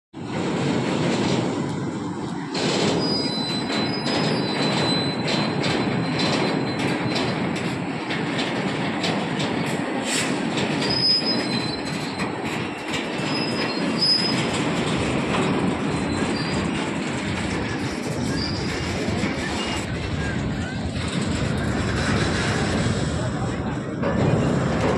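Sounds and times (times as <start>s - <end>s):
train wheels rolling on rail: 0.2s - 24.9s
high wheel squeals: 2.9s - 7.3s, 10.8s - 12.4s, 13.1s - 14.8s, 16.0s - 16.9s, 17.8s - 19.9s.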